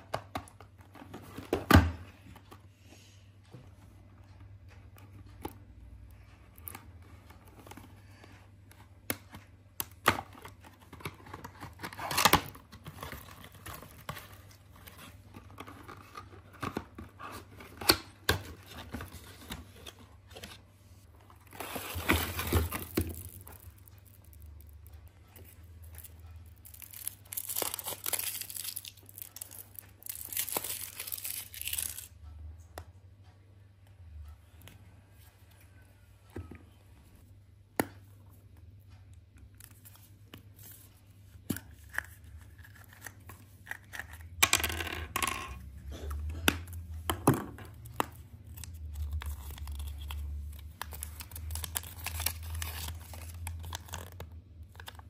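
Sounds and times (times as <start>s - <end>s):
foil crinkling and tearing: 48.7s - 55.0s.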